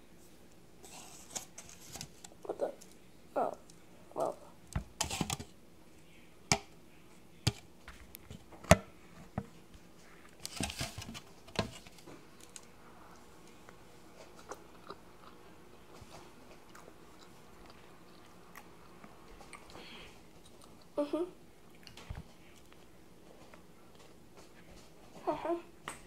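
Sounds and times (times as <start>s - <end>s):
person chewing a sandwich: 13.2s - 21.0s.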